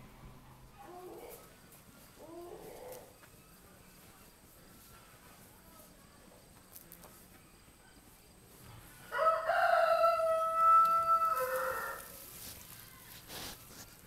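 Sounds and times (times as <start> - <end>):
rooster crowing: 9.1 - 12.2.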